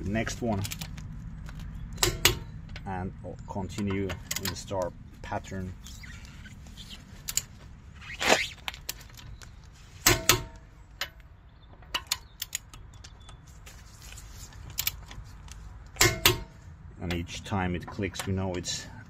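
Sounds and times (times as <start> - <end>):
metallic wrench clicks and clanks: 3.7 - 4.7.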